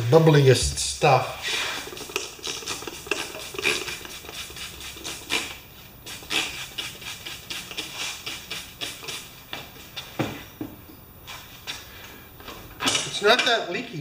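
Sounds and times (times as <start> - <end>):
spray bottle squirting: 1.6 - 10.0.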